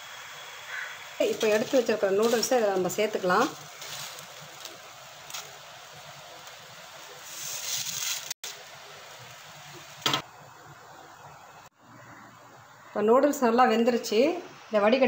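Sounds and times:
pot of water boiling: 0.0 - 11.7.

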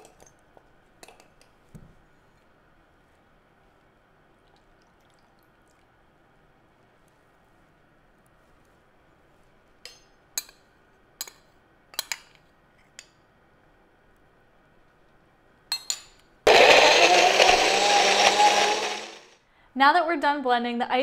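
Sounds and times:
blender motor running: 16.5 - 19.4.

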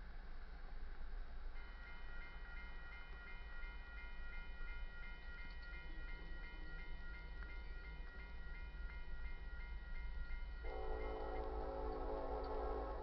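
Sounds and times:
crossing warning bell ringing: 1.5 - 13.0.

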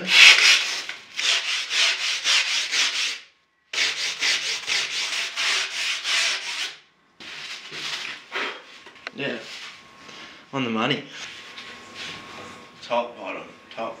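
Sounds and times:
hand-sanding strokes: 0.0 - 8.6.

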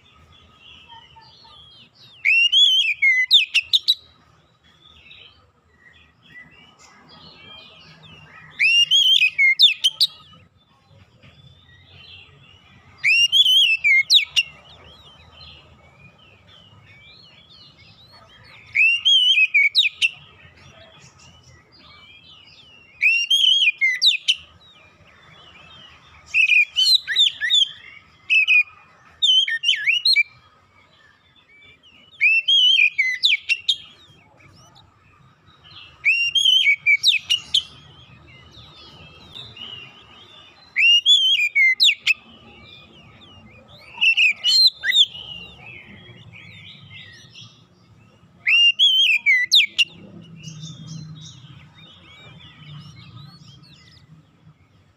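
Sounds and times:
bird singing whistled phrases: 2.0 - 4.0, 7.9 - 10.2, 11.8 - 14.5, 22.9 - 24.5, 26.3 - 30.3, 32.1 - 34.8, 35.9 - 38.0, 40.6 - 47.6, 48.4 - 54.1.

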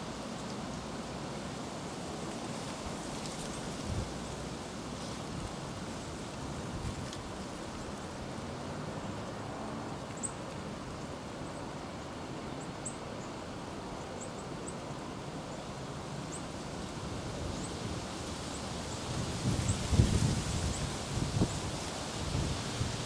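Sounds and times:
outdoor background hiss: 0.0 - 23.0.

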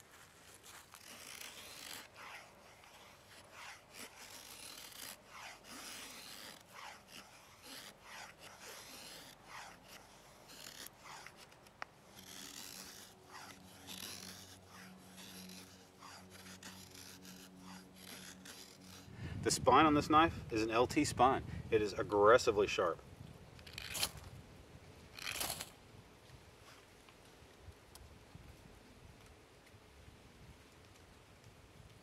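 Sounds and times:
knife scraping wooden stick: 0.4 - 21.0, 23.6 - 24.2, 25.1 - 25.7.

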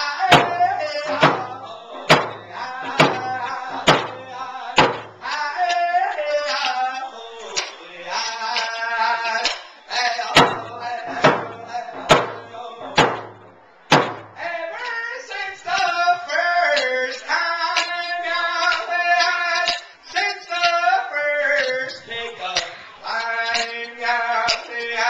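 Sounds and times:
man singing: 0.0 - 13.4, 14.4 - 25.0
hand drum beats: 0.3 - 4.2, 4.8 - 5.2.

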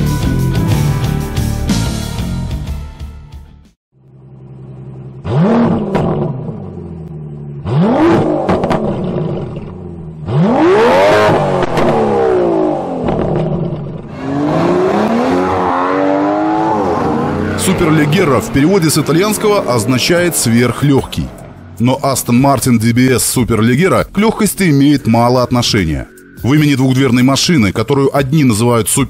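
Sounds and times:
car engine revving: 4.0 - 23.4.

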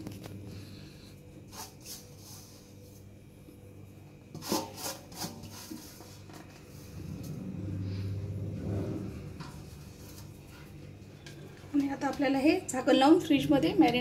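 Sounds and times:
hand scraping coating in metal bowl: 4.3 - 10.9.

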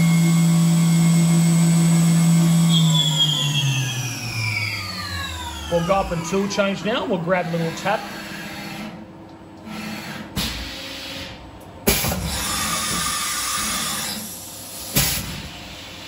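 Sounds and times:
machine low rumble: 0.0 - 8.1.

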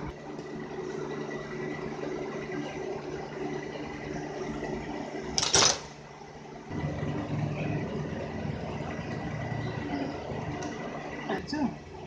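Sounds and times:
engine humming: 6.6 - 12.0.

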